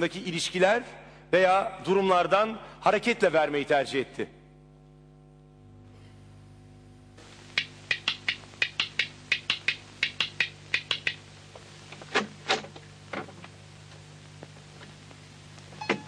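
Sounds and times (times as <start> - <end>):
steady low hum: 0.0 - 16.0
rapid sharp clicks: 7.2 - 13.5.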